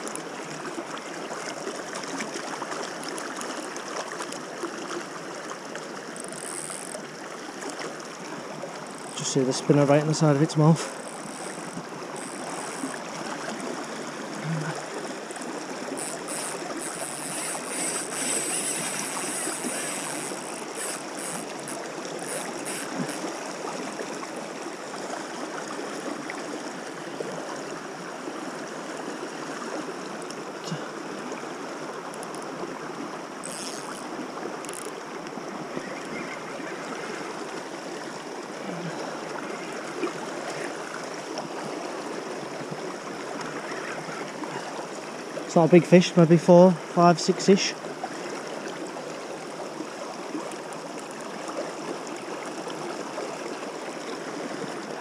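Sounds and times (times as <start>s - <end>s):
river rushing over stones: 0.0s - 55.0s
faint high scratchy ticks: 6.0s - 7.9s, 8.8s - 9.8s, 10.8s - 13.2s, 15.3s - 23.4s, 32.1s - 32.5s, 33.4s - 36.4s.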